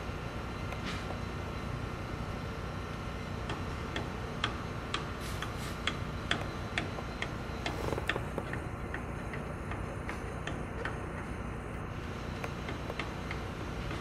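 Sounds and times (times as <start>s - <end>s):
evenly spaced sharp clicks: 3.4s - 11.4s, 12.4s - 14.0s.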